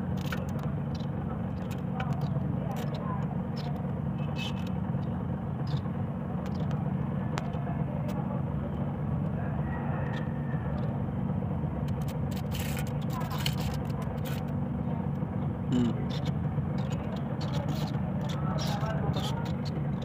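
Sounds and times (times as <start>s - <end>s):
steady low rumble: 0.0s - 20.0s
hands working potting mix: 11.9s - 14.6s.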